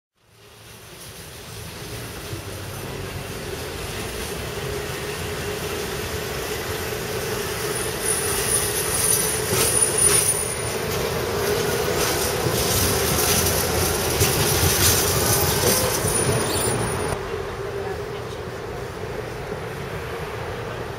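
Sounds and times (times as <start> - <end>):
tram hum: 0.2 - 20.9
tram wheels rumbling on rail: 0.2 - 20.9
high wheel squeal: 7.2 - 17.2.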